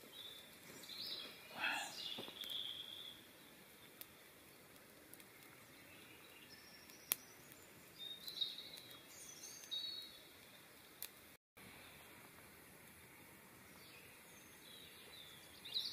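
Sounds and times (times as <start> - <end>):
campfire crackling and popping: 0.0 - 15.9
high bird calls: 0.1 - 3.3.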